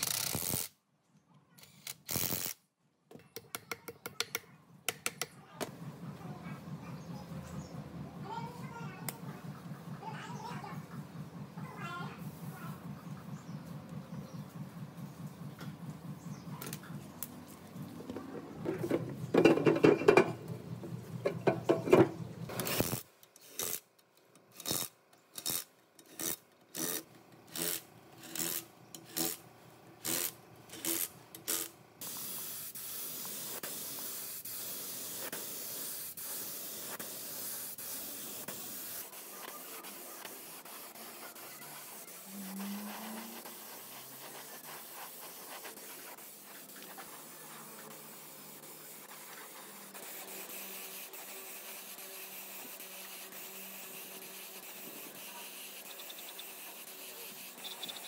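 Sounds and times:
rasping of filing or sanding: 0:39.0 - 0:58.0.

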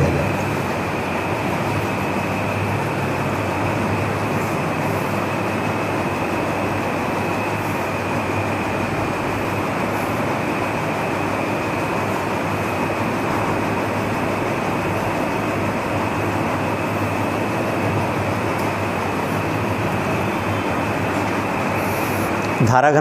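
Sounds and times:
low hum: 0:00.0 - 0:03.9.

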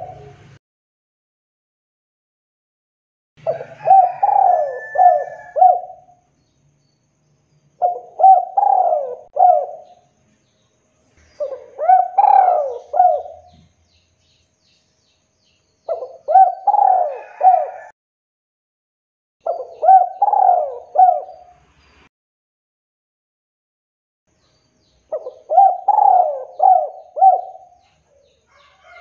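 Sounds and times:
dove cooing: 0:00.0 - 0:00.4, 0:03.4 - 0:06.2, 0:07.8 - 0:10.0, 0:11.4 - 0:13.7, 0:15.9 - 0:17.9, 0:19.4 - 0:21.6, 0:25.1 - 0:29.0.

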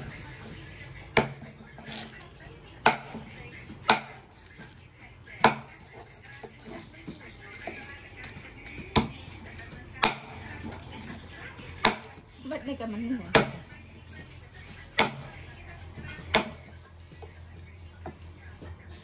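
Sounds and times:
knife chopping on wooden block: 0:01.2 - 0:02.1, 0:03.9 - 0:04.2, 0:05.4 - 0:05.7, 0:13.3 - 0:13.6, 0:16.1 - 0:16.7.

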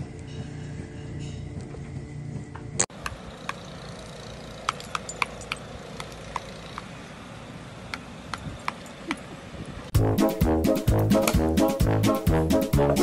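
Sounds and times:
wind spinner metallic ticks: 0:03.0 - 0:07.2.

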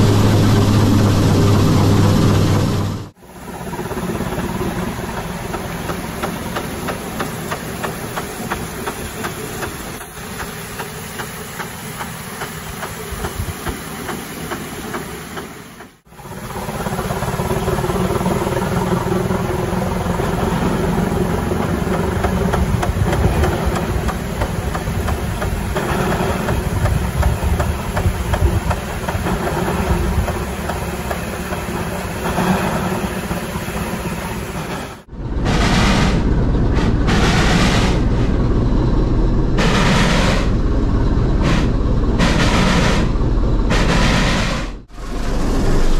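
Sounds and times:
steam exhaust beats: 0:00.0 - 0:45.9
steam hiss: 0:04.5 - 0:16.4, 0:19.8 - 0:38.1.

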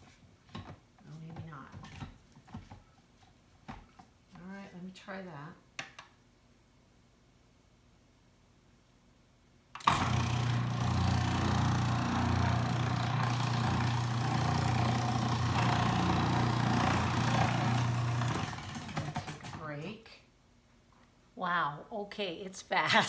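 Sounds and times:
food processor whirring: 0:09.8 - 0:19.6.

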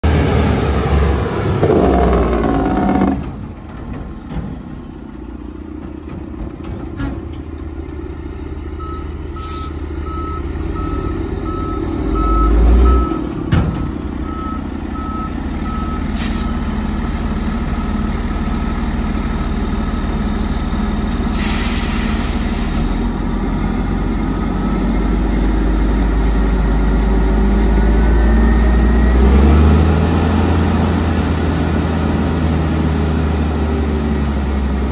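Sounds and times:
diesel truck engine running: 0:00.0 - 0:34.9
reversing alarm beeping: 0:08.8 - 0:13.2, 0:13.8 - 0:16.6, 0:24.3 - 0:25.1
air hiss: 0:21.4 - 0:23.0.

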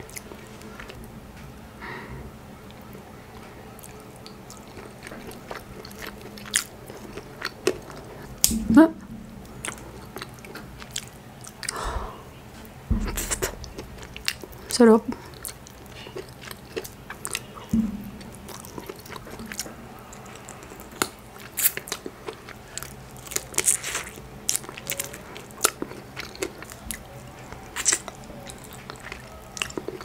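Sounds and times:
wet chewing and lip smacks: 0:18.3 - 0:30.0.

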